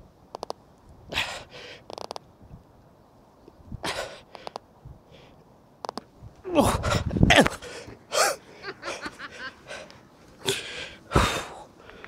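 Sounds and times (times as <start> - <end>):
person vocalizing: 6.5 - 8.4.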